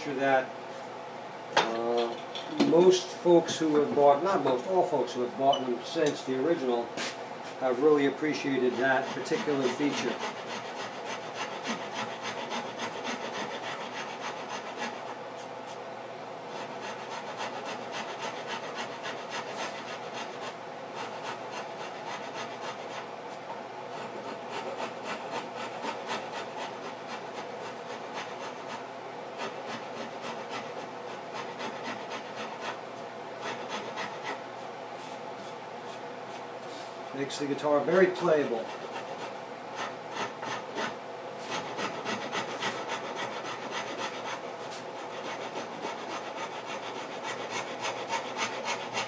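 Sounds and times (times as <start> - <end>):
hand rasp scraping wood: 7.6 - 15.2, 16.5 - 23.1, 23.9 - 28.8, 29.4 - 32.8, 33.4 - 34.4, 37.6 - 49.0.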